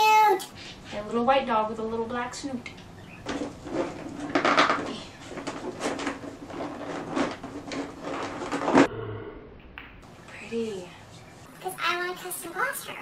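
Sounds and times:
plastic and cardboard rustling: 3.2s - 8.9s.

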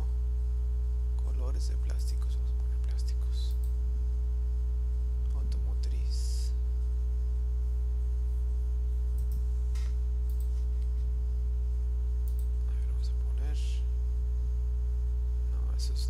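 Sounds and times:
electrical mains hum: 0.0s - 16.0s
faint short clicks: 9.2s - 10.5s, 12.2s - 12.5s.

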